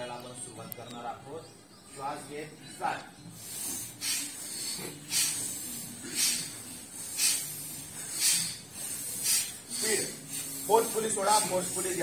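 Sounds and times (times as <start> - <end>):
group forceful breathing: 3.3 - 12.0.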